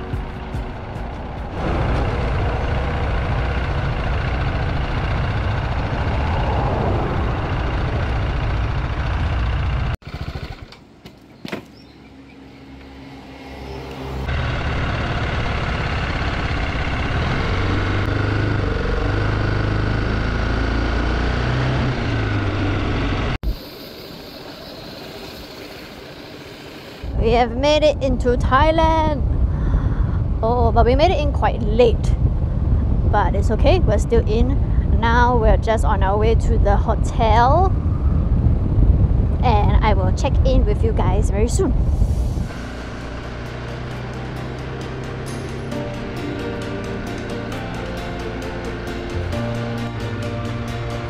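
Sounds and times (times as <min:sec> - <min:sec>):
wind noise: 0:00.0 - 0:10.0, 0:27.0 - 0:43.7
motorcycle engine: 0:00.0 - 0:27.2, 0:41.7 - 0:51.0.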